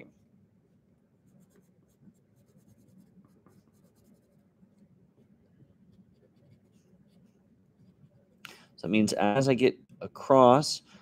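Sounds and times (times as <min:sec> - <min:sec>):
pencil scratching on paper: 0:01.3 - 0:08.4.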